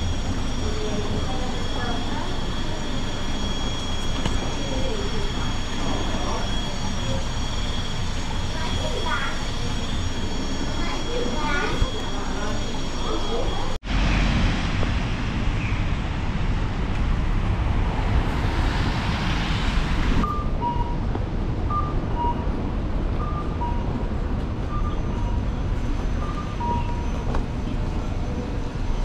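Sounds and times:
city street traffic noise: 0.0 - 29.0
wind on microphone: 13.8 - 23.2.

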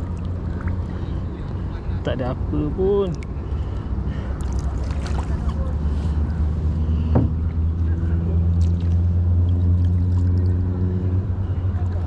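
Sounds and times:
faint droning tone: 0.0 - 12.0
low rumble of kayak on water: 0.0 - 12.0
knock on kayak: 7.1 - 7.4.

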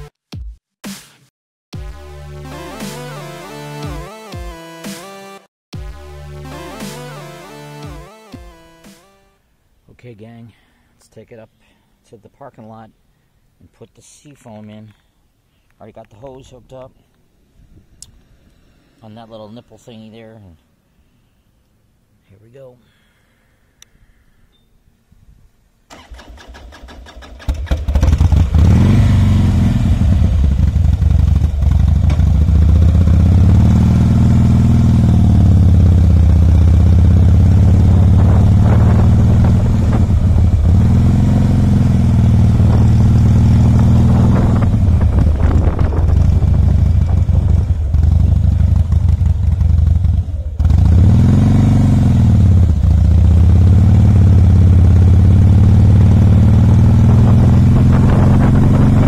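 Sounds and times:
motorcycle engine revving: 25.9 - 59.0.

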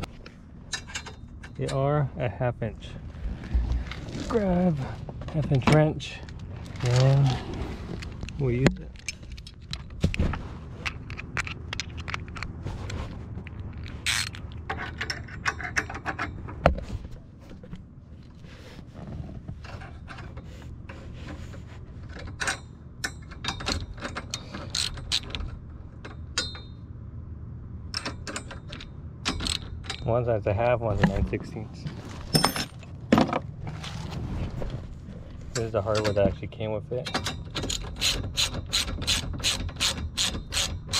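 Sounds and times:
metal tools clinking: 32.3 - 32.9, 35.5 - 36.4
ratchet clicking: 37.2 - 40.9.

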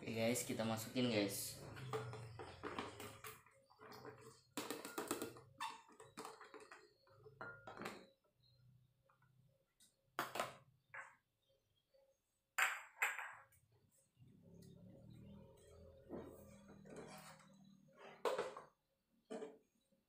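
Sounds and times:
plastic tub tapping against jar: 4.5 - 6.8.

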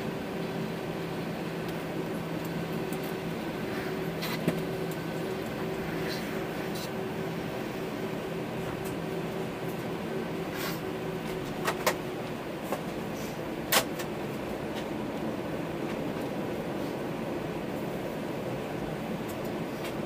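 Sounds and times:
aircraft cabin drone: 0.0 - 20.0
clicks and knocks in cabin: 11.3 - 12.9, 13.7 - 14.9.

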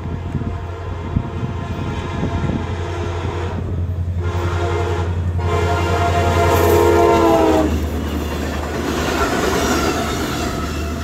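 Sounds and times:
locomotive horn blasts: 0.0 - 7.8
train passing: 0.0 - 11.0.

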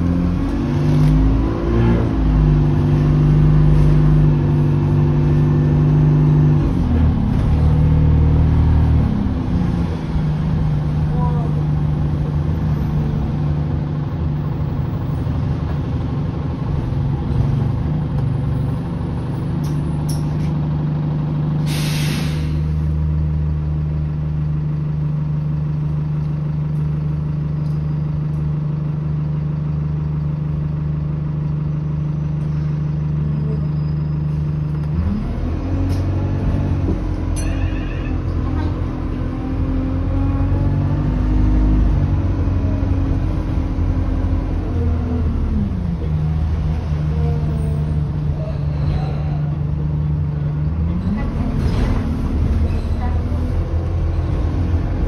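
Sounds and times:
bus engine idling: 2.0 - 55.0
air hiss: 21.6 - 22.7.

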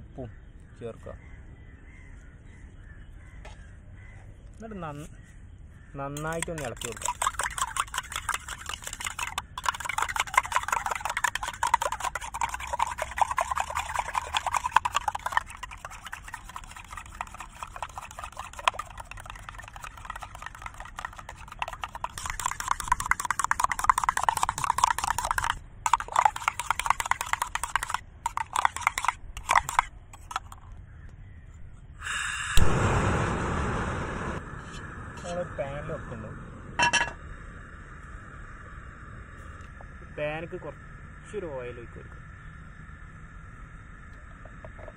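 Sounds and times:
spoon beating eggs in metal cup: 6.2 - 30.7
gas burner igniting whoosh: 32.1 - 36.8
gas burner rushing: 32.1 - 37.1.

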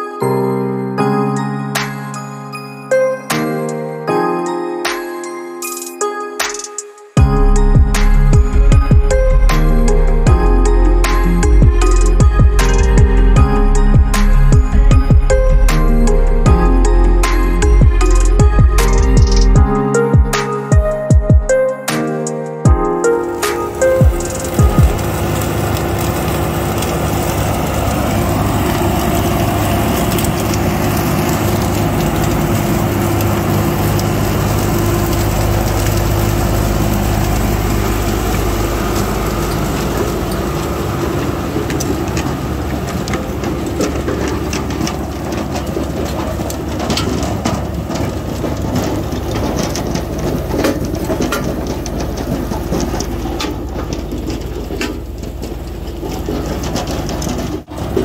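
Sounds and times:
tractor diesel engine running: 7.2 - 21.7, 22.6 - 58.0
lifter clattering and rattling: 23.0 - 58.0.

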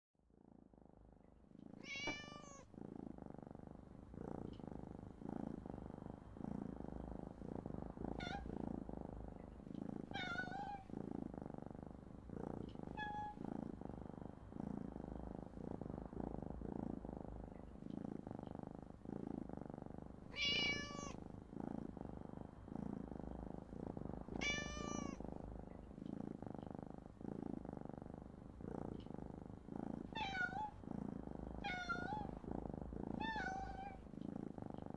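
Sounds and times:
low background noise: 0.3 - 34.9
kittens meowing: 1.8 - 2.6, 20.3 - 21.2, 24.4 - 25.2, 33.2 - 34.0.

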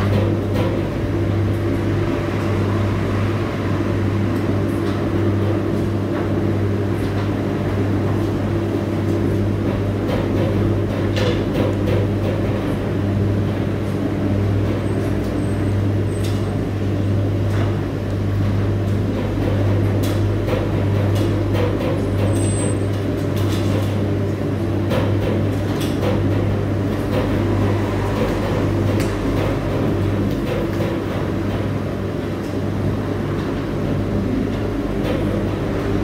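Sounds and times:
washing machine motor hum: 0.0 - 36.0.

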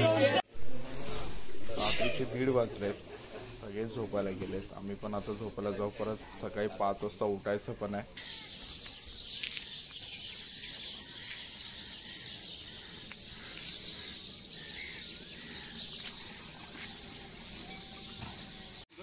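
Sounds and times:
crickets hissing: 0.5 - 19.0
faint insect chirps: 0.6 - 19.0.

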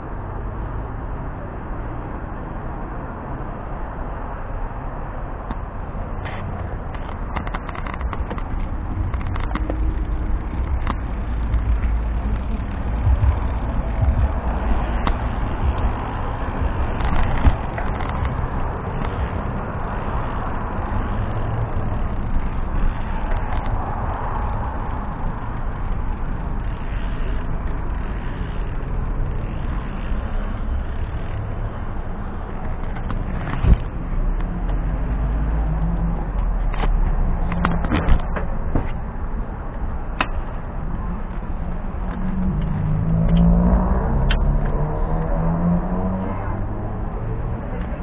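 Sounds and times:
street traffic rumble: 0.0 - 48.0
wheel rolling over pavement: 6.1 - 45.7
wind on microphone: 6.6 - 21.1.

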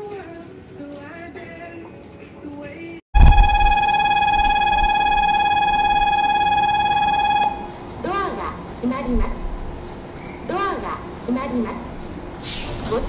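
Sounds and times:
electric bell ringing: 3.2 - 7.8.

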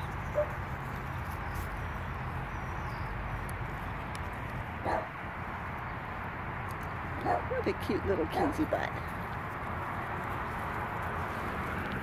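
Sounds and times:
dog yip: 4.8 - 5.1, 7.2 - 7.6.

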